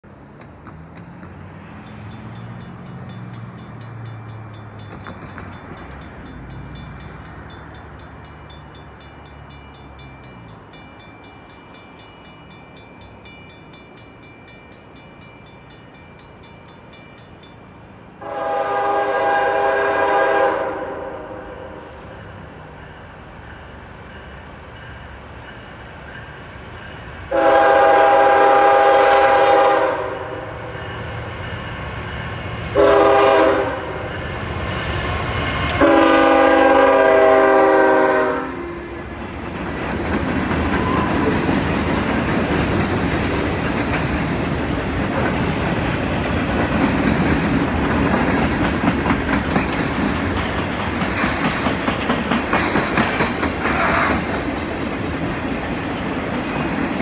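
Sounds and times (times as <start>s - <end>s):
train horn blasts: 18.2s - 22.1s, 27.3s - 30.8s, 32.7s - 39.1s.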